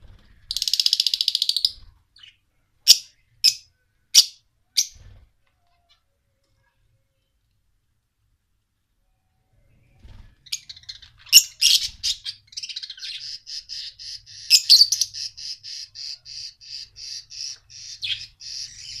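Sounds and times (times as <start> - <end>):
birds chirping: 9.2 - 19.0.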